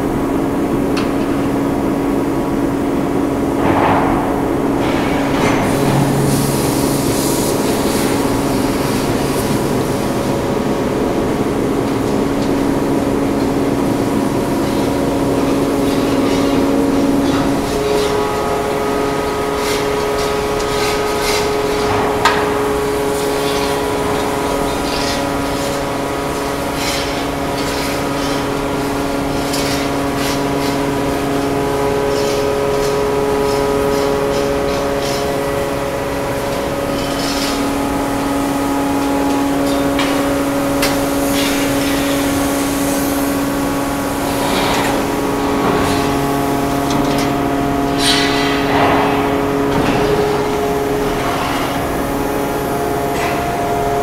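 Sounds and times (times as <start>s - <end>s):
forming press humming: 0.0s - 54.0s.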